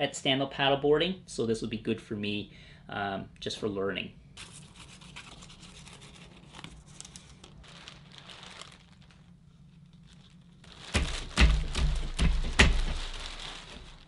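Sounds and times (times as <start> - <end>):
faint steady hum: 0.0 - 14.0
sandpaper crinkling: 4.4 - 14.0.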